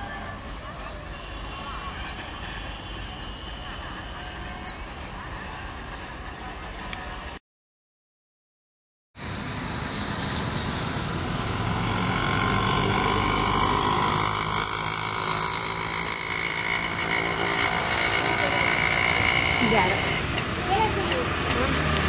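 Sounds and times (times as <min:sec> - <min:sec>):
diesel locomotives idling: 0:09.2 - 0:22.0
crowd hubbub: 0:17.3 - 0:22.0.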